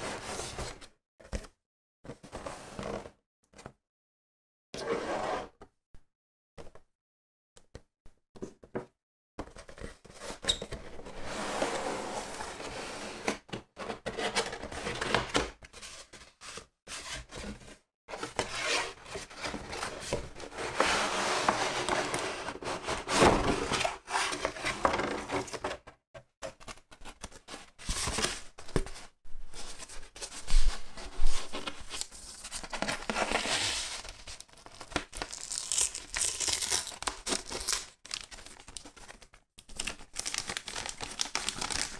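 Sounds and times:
rustling cardboard and plastic wrap: 0:29.6 - 0:39.1, 0:39.8 - 0:41.9.

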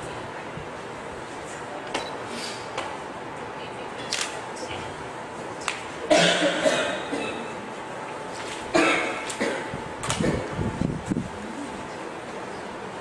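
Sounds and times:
person coughing: 0:06.1 - 0:07.5, 0:08.7 - 0:10.5.

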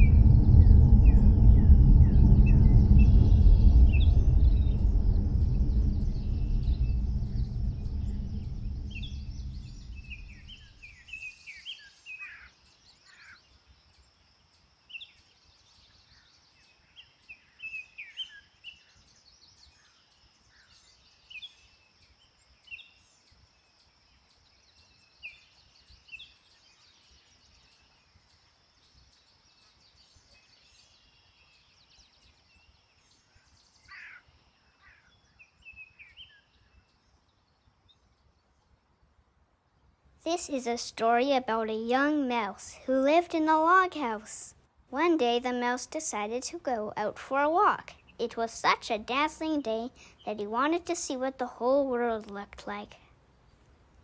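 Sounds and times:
deep rumble: 0:00.0 - 0:11.0
birds chirping: 0:00.0 - 0:11.3
faint high hiss: 0:00.0 - 0:12.8.

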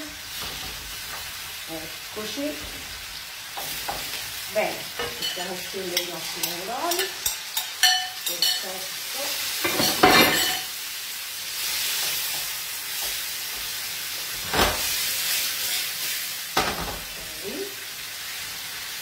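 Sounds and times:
tomatoes sizzling in hot oil: 0:00.0 - 0:19.0
loud burst of frying: 0:08.9 - 0:19.0
knocks on frying pan: 0:16.6 - 0:17.0.

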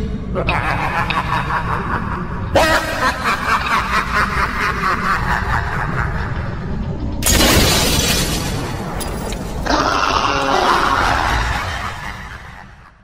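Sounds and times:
loud crashing burst: 0:07.2 - 0:09.6.

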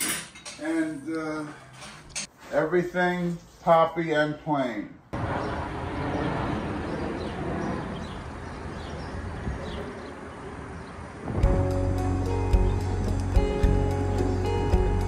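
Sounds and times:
steady outdoor rushing noise: 0:05.2 - 0:11.7
music: 0:11.4 - 0:15.0.

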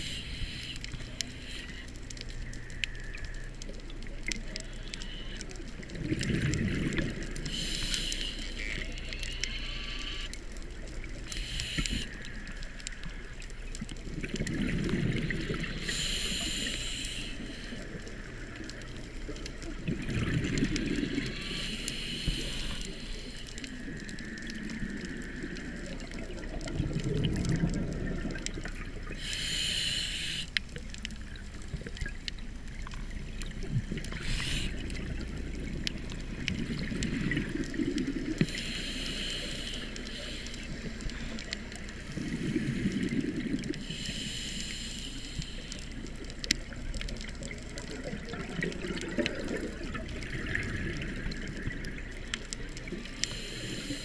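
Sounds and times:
regulator inhalation hiss: 0:00.0 - 0:01.8, 0:07.5 - 0:08.8, 0:11.3 - 0:12.5, 0:15.7 - 0:18.0, 0:21.0 - 0:23.6, 0:29.1 - 0:30.5, 0:34.1 - 0:34.9, 0:38.4 - 0:41.4, 0:43.8 - 0:46.0, 0:53.1 - 0:54.0
exhaled bubbles rumbling underwater: 0:00.0 - 0:54.0.

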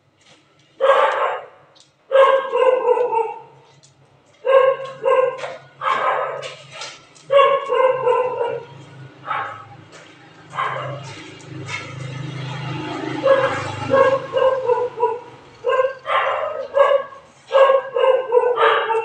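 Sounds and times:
dog barking and yelping: 0:00.8 - 0:03.6, 0:04.4 - 0:06.6, 0:07.2 - 0:09.8, 0:10.5 - 0:11.2, 0:13.1 - 0:19.0.

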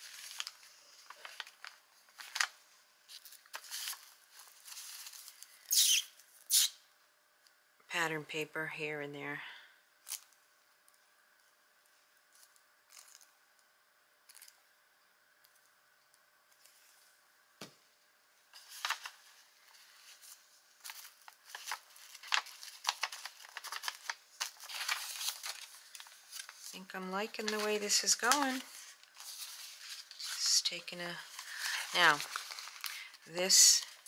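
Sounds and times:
paper rustling: 0:00.0 - 0:05.6, 0:18.5 - 0:34.0.

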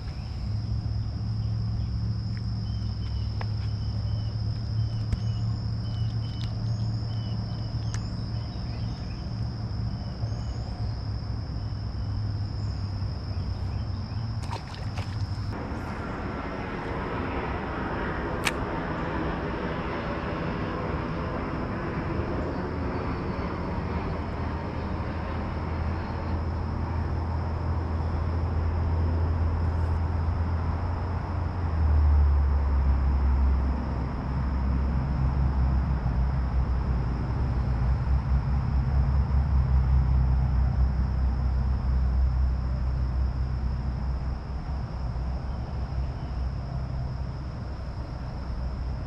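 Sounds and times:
high insect drone: 0:00.0 - 0:49.0
low steady rumble: 0:00.0 - 0:49.0
bird chirps: 0:02.6 - 0:09.3.

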